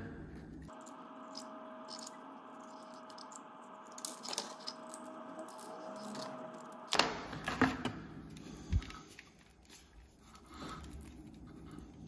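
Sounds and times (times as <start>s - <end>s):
cable rubbing and scraping: 1.4s - 7.7s.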